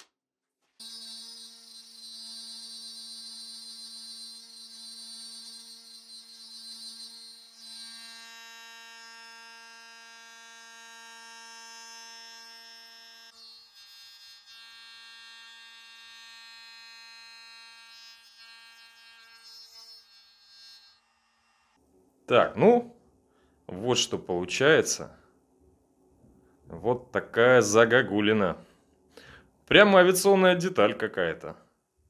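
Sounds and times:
router motor high-pitched whine: 0:00.8 - 0:21.8.

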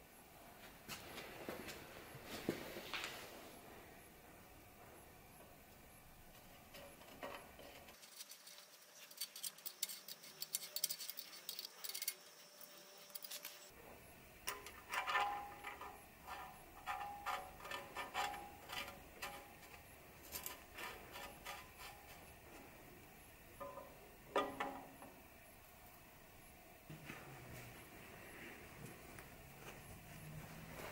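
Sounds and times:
light scratching and tapping: 0:06.3 - 0:13.7
metal threading clicks and scrapes: 0:06.3 - 0:13.7, 0:14.5 - 0:22.4.

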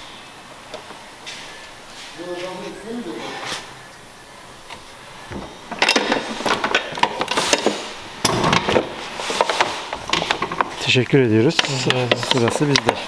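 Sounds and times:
plastic rustling scrape: 0:06.0 - 0:08.0, 0:08.6 - 0:11.0.

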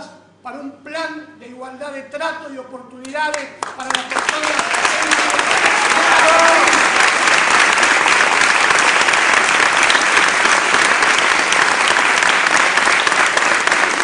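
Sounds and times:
audience applauding: 0:03.6 - 0:14.0.

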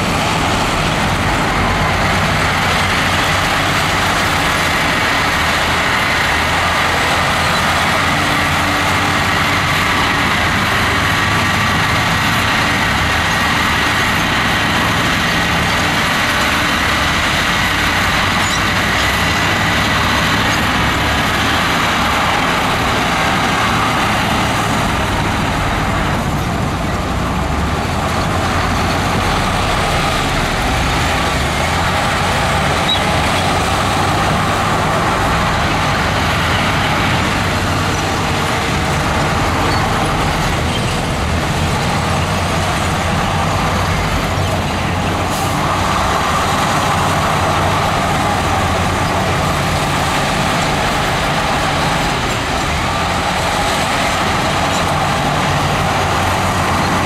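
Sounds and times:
bulldozer diesel engine running: 0:00.0 - 0:57.0
dump truck engine running: 0:00.0 - 0:57.0.

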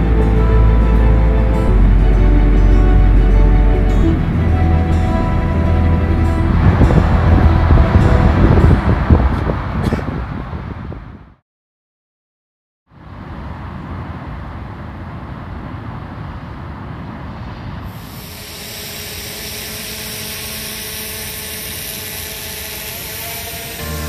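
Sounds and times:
volcanic steam venting roar: 0:00.4 - 0:10.2, 0:16.6 - 0:24.0.

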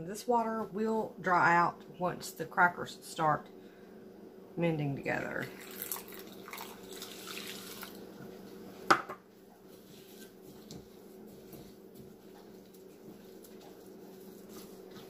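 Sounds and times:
water pouring into bowl: 0:05.5 - 0:08.0
spatula stirring wet seeds: 0:09.6 - 0:15.0.

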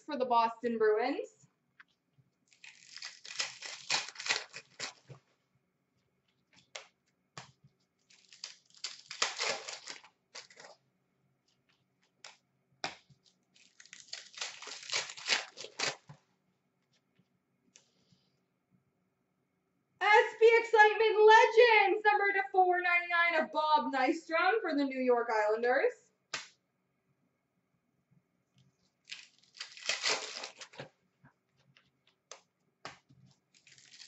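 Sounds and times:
card wrappers tearing and crinkling: 0:02.5 - 0:05.2, 0:08.0 - 0:10.8, 0:12.3 - 0:16.2, 0:29.0 - 0:30.9, 0:33.5 - 0:34.0.

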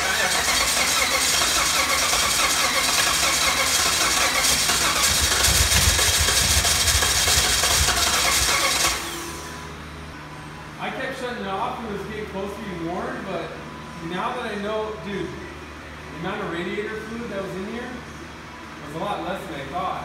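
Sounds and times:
engine running rough and clattery: 0:00.0 - 0:09.9.

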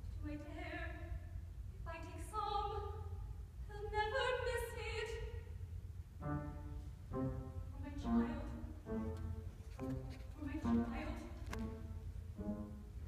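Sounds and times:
woman singing opera: 0:03.7 - 0:05.4, 0:07.7 - 0:08.7, 0:10.4 - 0:11.5
faint instrumental accompaniment: 0:06.2 - 0:13.0.

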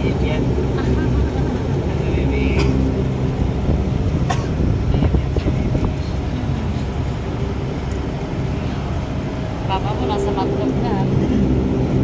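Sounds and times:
propeller engine droning hum: 0:00.0 - 0:12.0.

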